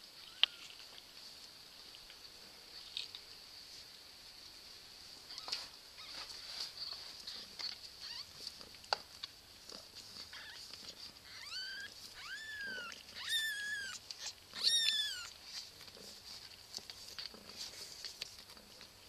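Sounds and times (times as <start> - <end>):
cat mewing: 10.3 - 15.4.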